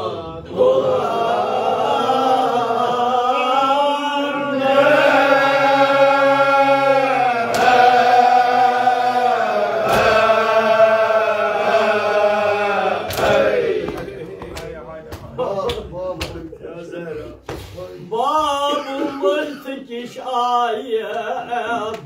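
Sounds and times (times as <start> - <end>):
men chanting a lament: 0.0 - 22.0
hands slapping chests: 13.0 - 16.6.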